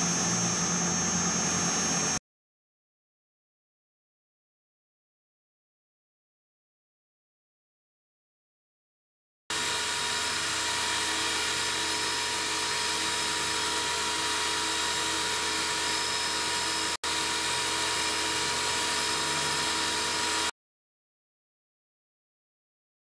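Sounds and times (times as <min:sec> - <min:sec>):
milling machine cutting metal: 0:09.5 - 0:20.5.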